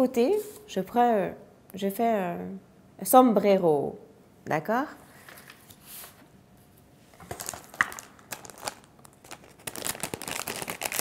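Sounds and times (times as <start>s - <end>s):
paper cards rustling: 7.1s - 11.0s
plastic bag crinkling: 7.2s - 11.0s.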